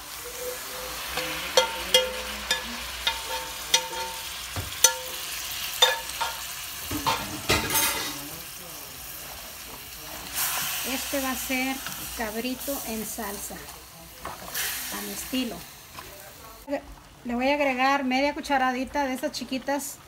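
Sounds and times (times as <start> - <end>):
meat sizzling in a pot: 0.0 - 19.9
metal spoon clinking against pan: 0.8 - 8.2.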